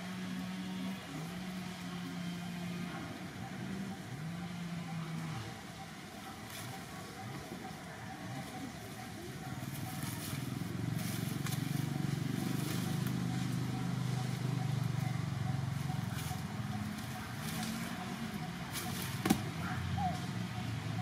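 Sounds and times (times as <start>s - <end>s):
engine humming: 0.0s - 21.0s.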